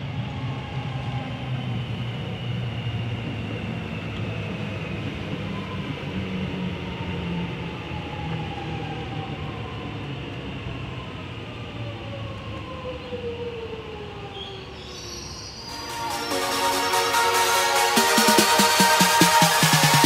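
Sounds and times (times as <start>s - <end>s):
electric train rumbling: 0.0s - 14.3s, 15.7s - 20.0s
train whine falling in pitch: 15.7s - 20.0s.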